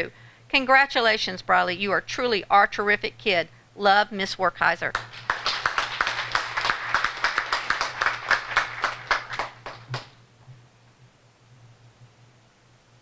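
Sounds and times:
people applauding: 4.9 - 10.2.

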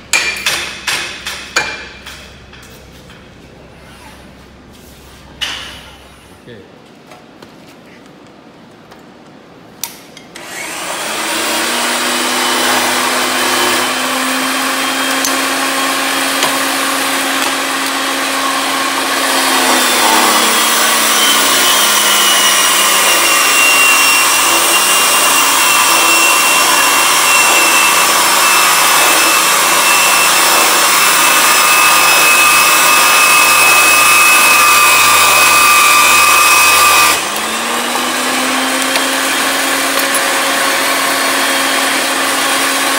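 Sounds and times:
pipe threading machine running: 10.4 - 42.9.

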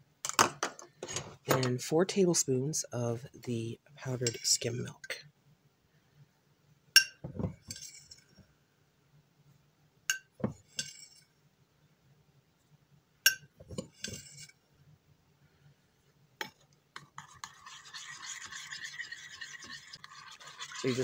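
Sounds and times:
spoon stirring in bowl: 4.1 - 4.9, 7.0 - 8.3, 10.1 - 11.3, 13.3 - 14.6, 16.4 - 21.0
metal spoon clinking on glass: 7.0 - 7.2, 10.1 - 11.0, 13.3 - 13.5.

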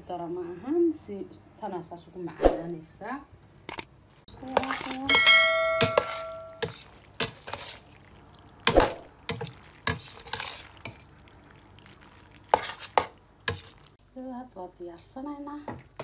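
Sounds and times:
metal utensil scraping a pot: 4.5 - 7.9, 8.8 - 11.1, 12.5 - 13.8
ringing clink: 5.1 - 6.6.

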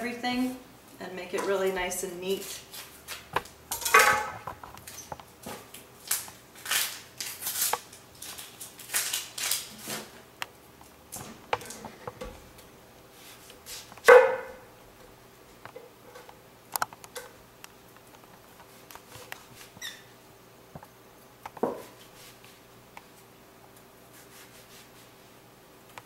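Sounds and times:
onion skin crackling and rustling: 1.4 - 14.1.

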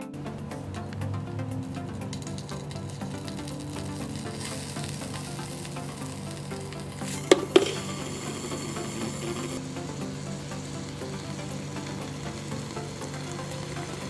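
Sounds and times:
background music: 0.0 - 14.0
hot metal sizzling: 0.4 - 14.0
sharp pops: 7.0 - 8.1.

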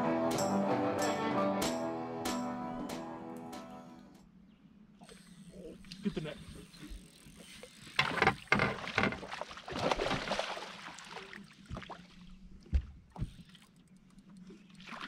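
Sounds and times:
water splashing against boat: 7.4 - 13.8.

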